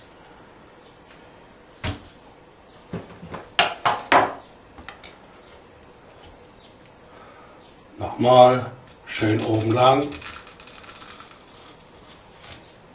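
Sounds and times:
knocks on wooden cutting board: 2.9 - 4.4.

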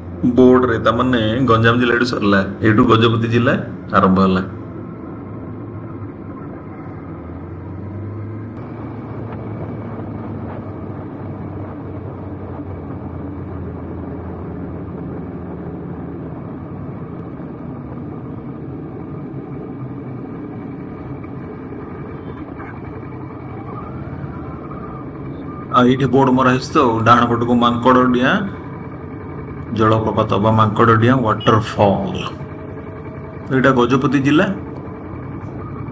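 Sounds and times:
vehicle engine and tyre drone: 0.0 - 35.9.

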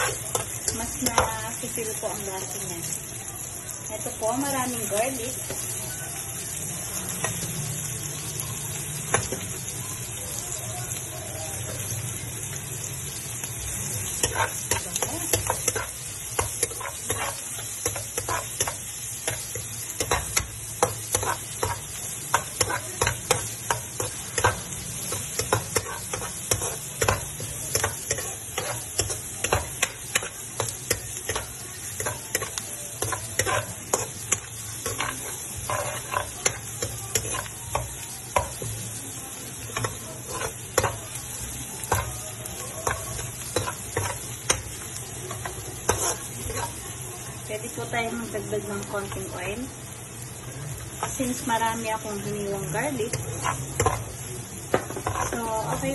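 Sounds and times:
onion sizzling in hot oil: 0.0 - 55.9
spatula scraping and clicking on pan: 14.2 - 38.6, 39.8 - 41.0, 42.8 - 46.8, 53.1 - 55.8.

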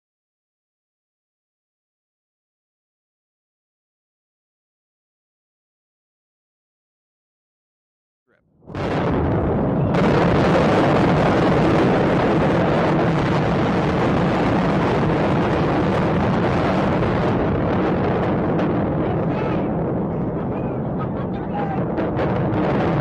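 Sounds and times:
explosion rumbling roar: 8.6 - 23.0.

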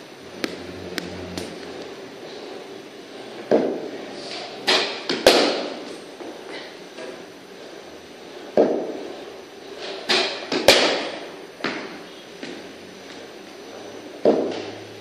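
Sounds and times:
cricket bat striking ball: 4.7 - 5.8, 10.1 - 11.9, 14.2 - 14.8.

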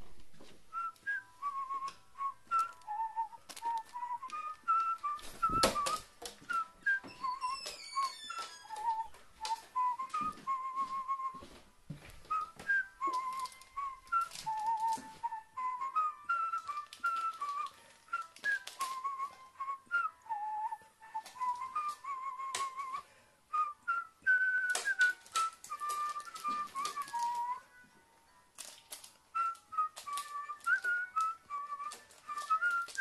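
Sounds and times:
whistled tune: 0.4 - 33.0
scattered clicks and taps: 12.3 - 15.3, 16.4 - 19.4, 24.4 - 27.5, 28.6 - 33.0.

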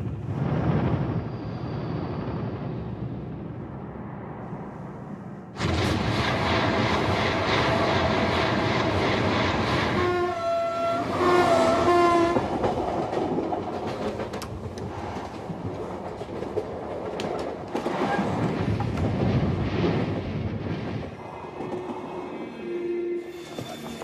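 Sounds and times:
train carriages rumbling: 6.3 - 19.6, 20.6 - 24.0.

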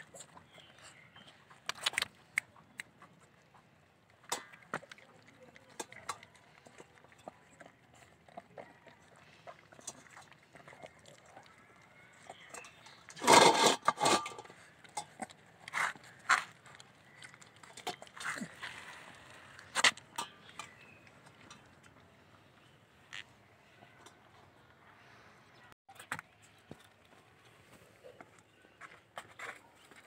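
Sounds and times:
puppy crunching food: 0.0 - 22.3.

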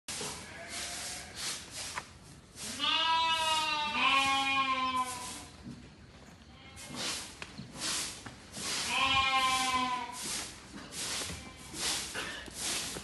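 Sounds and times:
sheep bleating: 2.7 - 5.4, 8.9 - 10.2.

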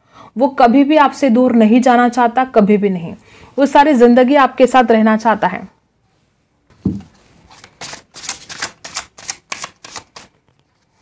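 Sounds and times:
soft thud: 6.8 - 7.1
crisp card clicks and flicks: 7.6 - 10.3.

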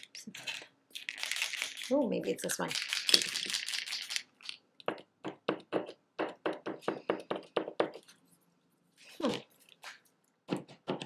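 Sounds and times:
paint pen mixing ball rattling: 0.0 - 6.0.

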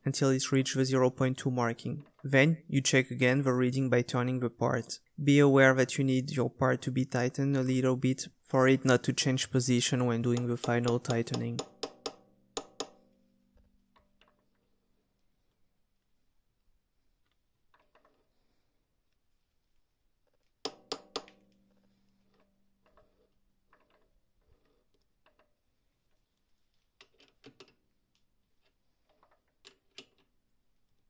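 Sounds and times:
metal clicks and knocks: 10.2 - 13.1, 27.0 - 30.4
sharp metal knocks ringing: 10.4 - 13.1, 20.7 - 21.5.

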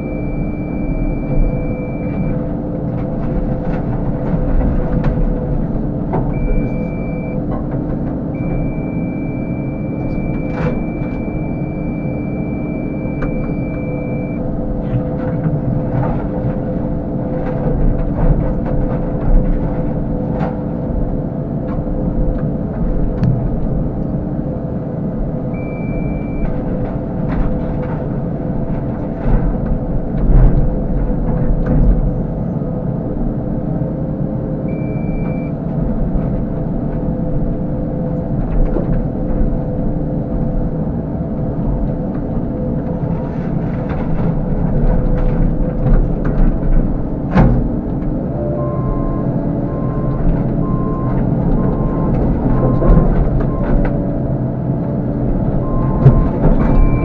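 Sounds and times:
short high beep: 0.0 - 2.4, 6.4 - 7.4, 8.4 - 14.4, 25.6 - 26.5, 34.7 - 35.5, 48.4 - 52.8
excavator diesel engine and hydraulics: 0.0 - 57.0.

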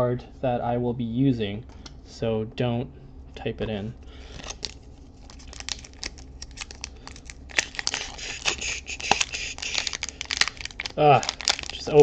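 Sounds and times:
foil wrapper crinkling: 4.2 - 12.0.

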